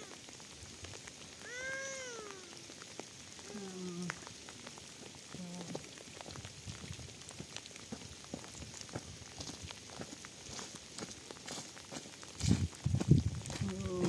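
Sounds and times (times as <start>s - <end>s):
rain pattering: 0.0s - 14.0s
footsteps on stony ground: 5.7s - 14.0s.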